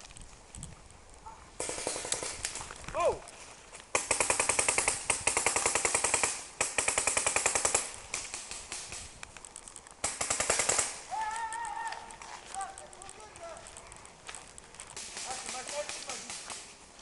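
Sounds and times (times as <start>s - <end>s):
paintball markers firing bursts: 1.6s - 2.4s, 3.9s - 9.1s, 10.0s - 11.0s, 15.0s - 16.7s.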